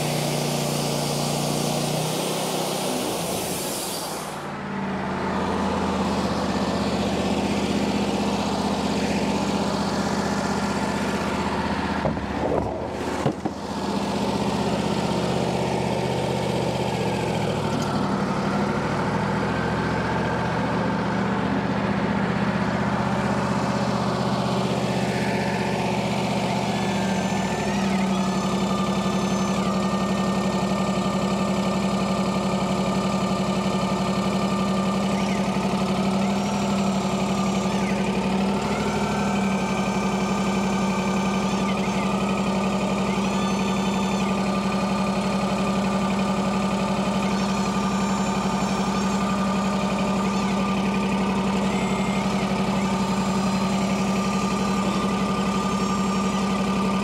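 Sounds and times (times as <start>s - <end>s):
band sawmill running: 0.0s - 57.0s
clatter of knocks: 12.0s - 13.6s.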